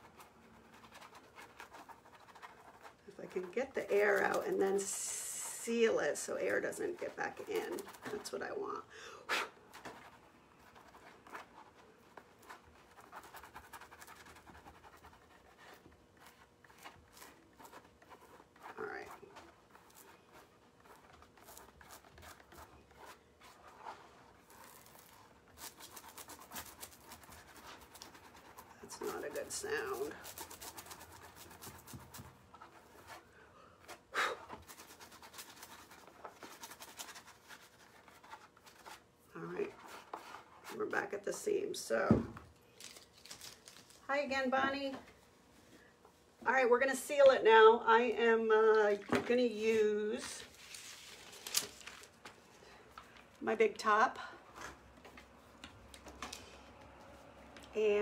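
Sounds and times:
fingertips rubbing and scratching: 0.0 - 8.7, 9.7 - 33.3, 34.6 - 40.9.

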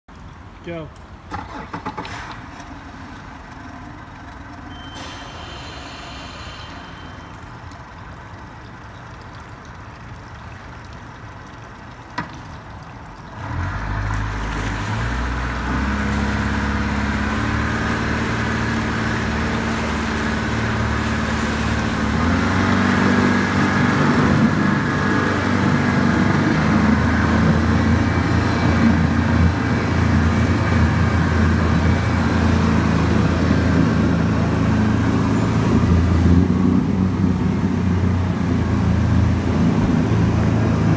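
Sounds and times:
propeller churning water: 0.1 - 40.9
outboard engine running: 1.6 - 6.0, 13.5 - 40.9.

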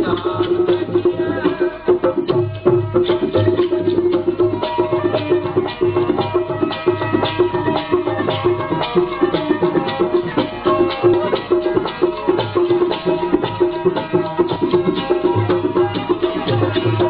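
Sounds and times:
hand drum beat: 0.0 - 17.0
sustained melodic line: 2.7 - 17.0.

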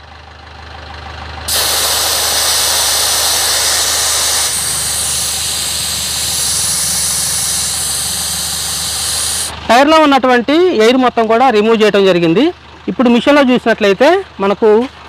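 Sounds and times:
air hissing out of tyre: 1.5 - 9.6.

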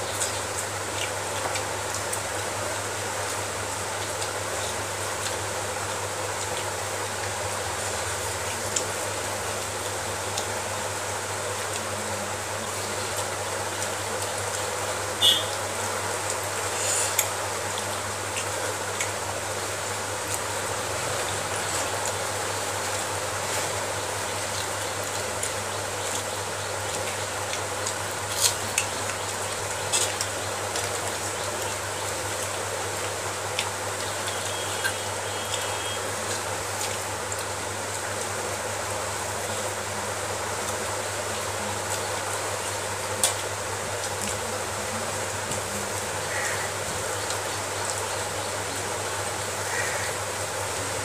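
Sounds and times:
steady hiss: 0.0 - 51.0
fingers eating from metal plate: 11.4 - 38.5.

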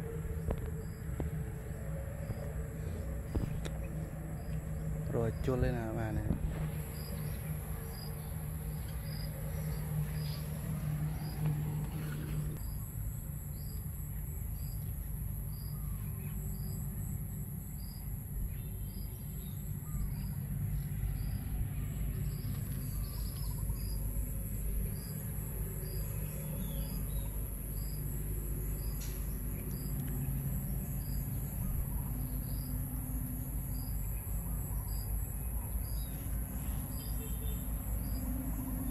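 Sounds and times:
high-pitched insect drone: 0.0 - 11.8
low rumble: 0.0 - 12.8.

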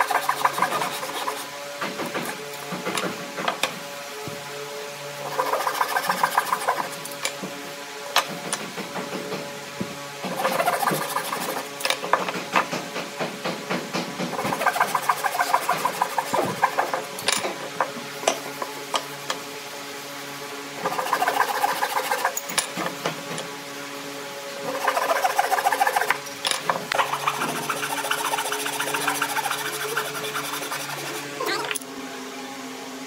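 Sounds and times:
hand saw cutting wood: 0.0 - 3.8, 5.2 - 7.4, 10.2 - 18.8, 20.8 - 23.4, 24.6 - 31.8.

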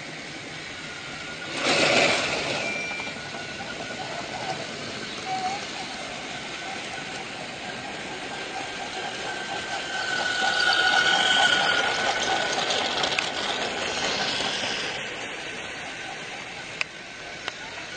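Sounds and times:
steady whine: 0.0 - 17.9.

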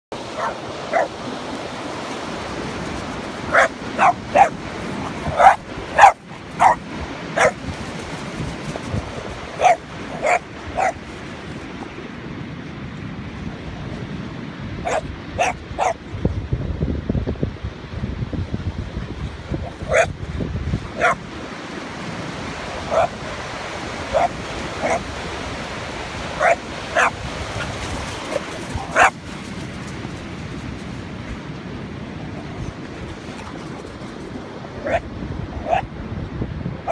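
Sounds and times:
surf washing: 0.1 - 36.9
dog barking in play: 0.3 - 1.1, 3.5 - 6.8, 7.4 - 7.6, 9.6 - 11.0, 14.8 - 16.0, 19.6 - 20.2, 21.0 - 21.2, 22.9 - 23.2, 24.1 - 25.1, 26.4 - 29.2, 34.8 - 35.0, 35.6 - 35.9.

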